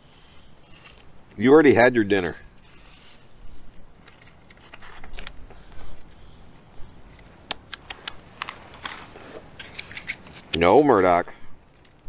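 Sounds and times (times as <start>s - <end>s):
sharp clicks: 7.1s - 9.0s.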